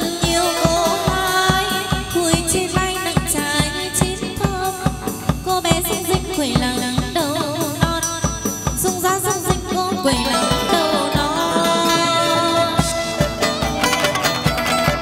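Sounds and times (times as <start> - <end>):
plucked lute notes: 0.0 - 2.0, 10.2 - 15.0
person singing with vibrato: 0.0 - 14.4
drum and clapper strikes: 0.0 - 15.0.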